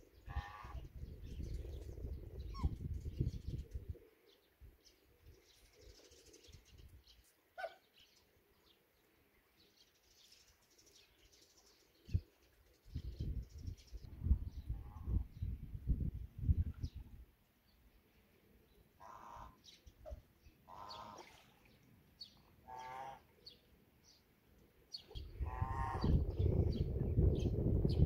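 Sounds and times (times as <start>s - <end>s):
wind rumble on microphone: 0.0s - 4.0s, 12.0s - 17.3s, 25.1s - 28.0s
small birds chirping: 1.0s - 15.6s, 18.6s - 28.0s
waterfowl calls: 19.0s - 21.5s, 22.6s - 23.3s, 25.4s - 26.2s.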